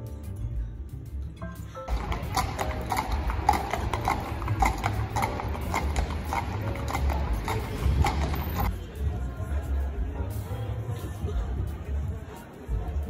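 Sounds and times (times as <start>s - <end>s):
hooves clopping on pavement: 1.9s - 8.7s.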